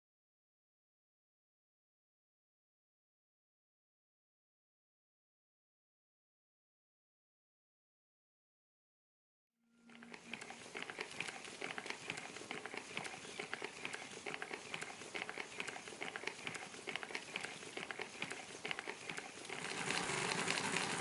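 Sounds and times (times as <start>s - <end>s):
miniature engine clicking: 10.0s - 21.0s.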